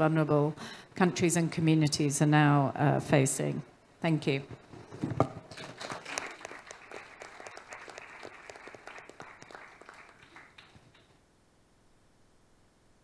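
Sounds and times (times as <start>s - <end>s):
audience applauding: 5.7s - 11.1s.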